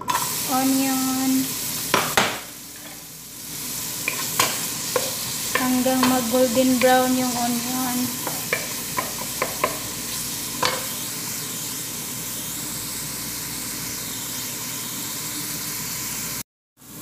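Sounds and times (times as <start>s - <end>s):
onions sizzling in hot oil: 0.0s - 17.0s
wooden spoon knocking on pan: 1.9s - 2.6s, 4.0s - 7.0s, 8.2s - 9.9s.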